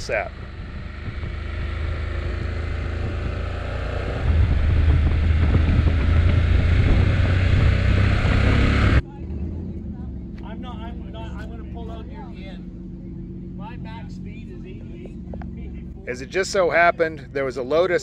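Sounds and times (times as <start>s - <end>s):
wind rushing over microphone: 0.0s - 9.0s
motorcycle engine running: 0.0s - 18.0s.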